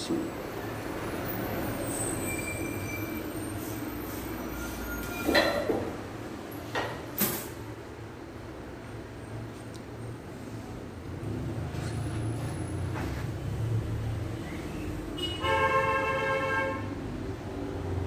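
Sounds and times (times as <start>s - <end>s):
faint wheel squeals: 1.5s - 5.4s.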